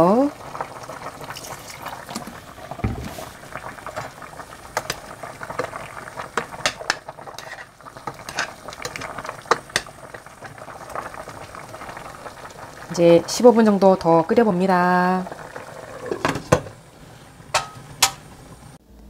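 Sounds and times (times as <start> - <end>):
stew bubbling in a pot: 0.0 - 18.8
dull thump: 2.8 - 3.2
metal ladle clinking against pot: 17.6 - 18.2.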